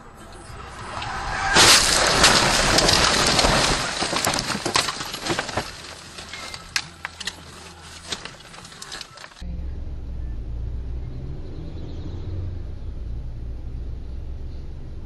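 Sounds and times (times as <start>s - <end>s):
car crashing through bushes: 0.2s - 9.4s
branches scraping and breaking: 0.3s - 9.4s
twigs snapping and crackling: 0.6s - 9.4s.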